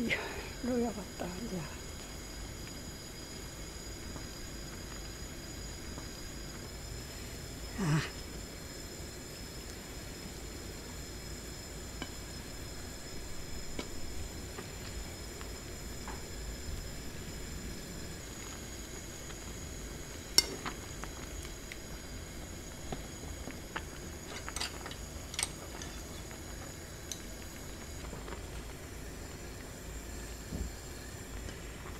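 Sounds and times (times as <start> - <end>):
metal tongs clinking on metal pot: 20.4 - 20.6, 24.3 - 26.1.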